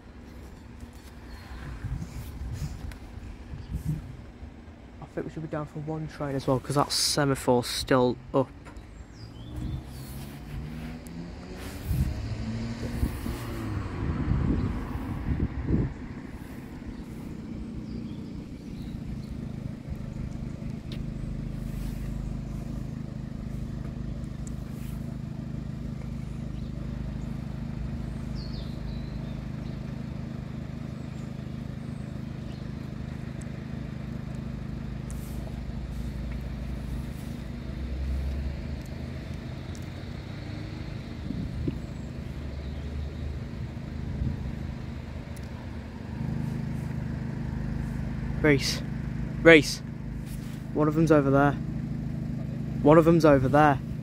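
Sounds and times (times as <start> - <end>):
engine idling: 0.0 - 12.1, 12.8 - 54.0.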